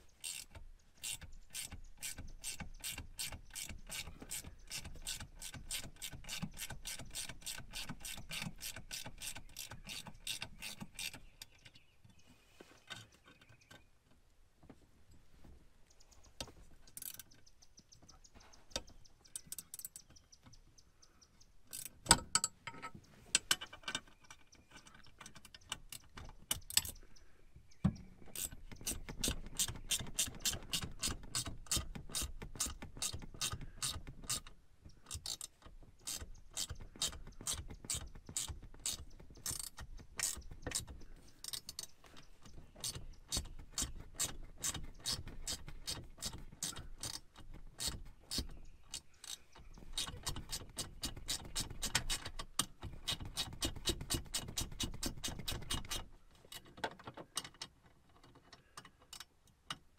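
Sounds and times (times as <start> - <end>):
ratchet wrench clicking: 0.2 - 11.2, 16.9 - 17.2, 28.4 - 41.9.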